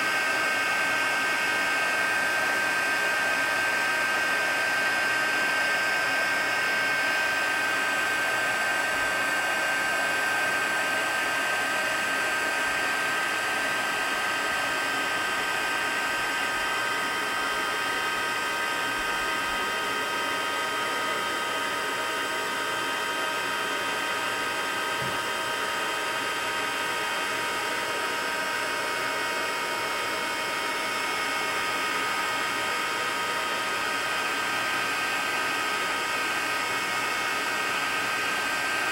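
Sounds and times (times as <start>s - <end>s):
heat tool blowing with whine: 0.0s - 38.9s.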